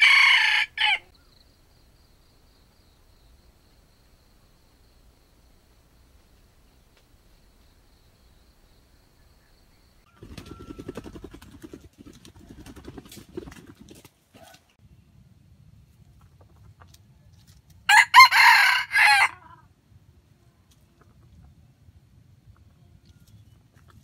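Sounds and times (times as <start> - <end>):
rooster crowing: 0.0 - 1.1, 17.9 - 19.6.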